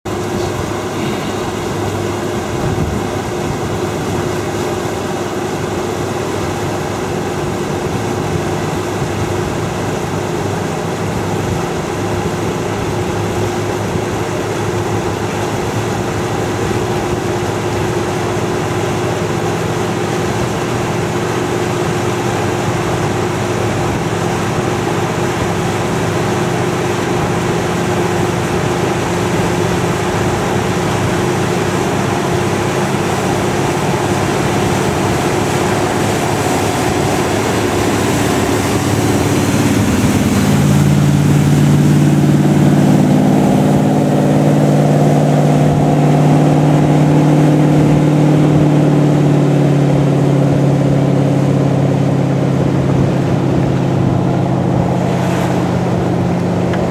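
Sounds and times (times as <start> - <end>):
boat engine running: 0.0 - 56.9
hull rush and spray: 0.1 - 56.9.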